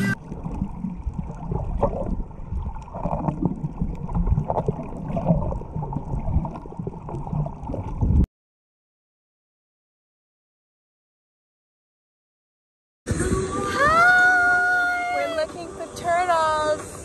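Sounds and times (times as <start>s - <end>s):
muffled underwater sloshing: 0.0s - 8.3s.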